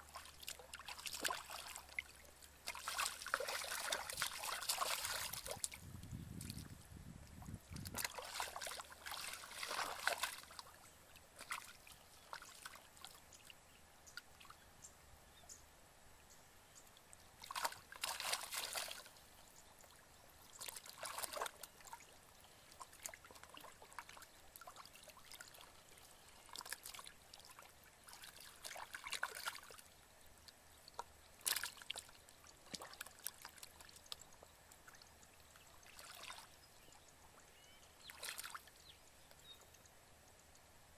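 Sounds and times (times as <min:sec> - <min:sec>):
muddy water splashing: 0:00.0 - 0:13.2, 0:17.4 - 0:19.2, 0:20.5 - 0:22.1, 0:22.7 - 0:29.8, 0:31.4 - 0:34.2, 0:34.8 - 0:36.9, 0:37.6 - 0:38.7.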